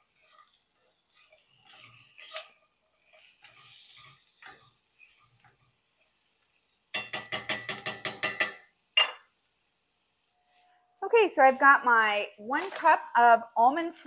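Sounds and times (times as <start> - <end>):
wooden spoon stirring in skillet: 0.0 - 10.8.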